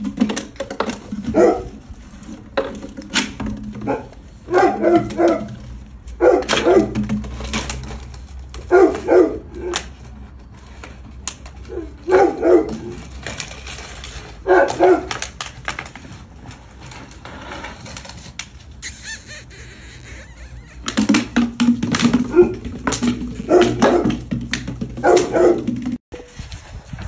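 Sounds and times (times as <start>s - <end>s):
puppy barking: 1.2s - 1.7s, 3.8s - 5.6s, 6.2s - 7.0s, 8.7s - 9.8s, 11.7s - 12.9s, 14.4s - 15.2s, 22.2s - 22.6s, 23.4s - 24.2s, 25.0s - 25.7s.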